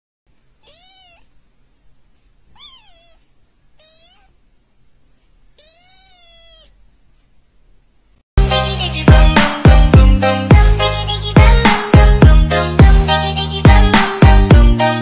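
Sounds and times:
kitten meowing: 0.6s - 1.3s, 2.5s - 3.2s, 3.8s - 4.4s, 5.6s - 6.8s.

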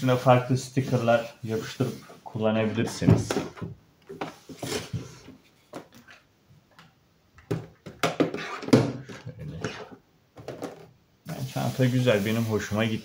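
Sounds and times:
plastic box knocks and scrapes: 7.5s - 10.9s.

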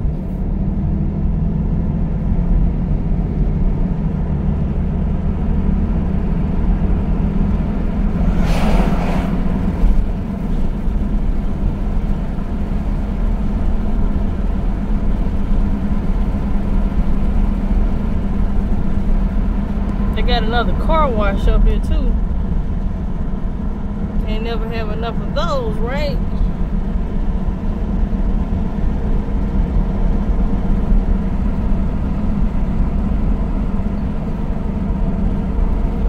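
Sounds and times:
car engine and road hum: 0.0s - 36.0s
truck passing whoosh: 6.0s - 12.0s.

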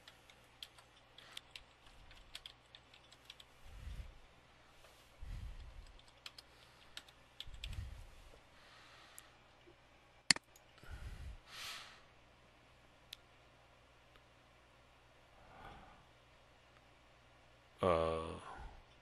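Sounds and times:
keyboard typing: 0.0s - 3.5s, 5.8s - 7.7s.

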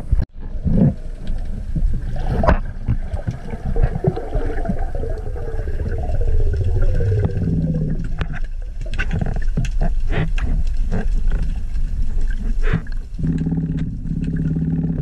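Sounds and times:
muffled underwater rumble: 0.0s - 15.0s
underwater clicks: 0.0s - 15.0s.

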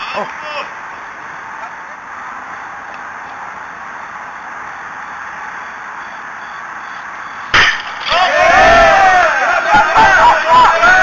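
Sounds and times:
outdoor ambience hiss: 0.0s - 11.0s.

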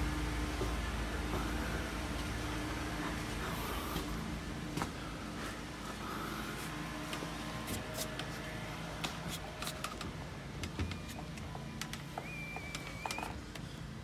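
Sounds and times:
low background hum: 0.0s - 14.0s
thin whistle: 12.2s - 13.3s.

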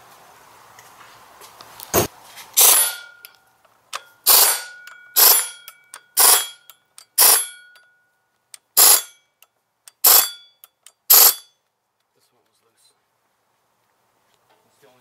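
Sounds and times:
air ratchet bursts: 2.6s - 3.1s, 4.0s - 7.8s, 8.6s - 9.2s, 9.9s - 11.5s
faint metallic ring: 2.7s - 11.7s.

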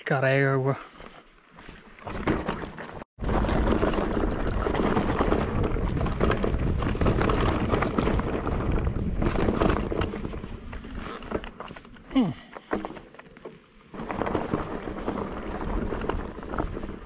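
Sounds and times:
bike rattling: 1.6s - 17.0s
wind on microphone: 3.2s - 11.1s.

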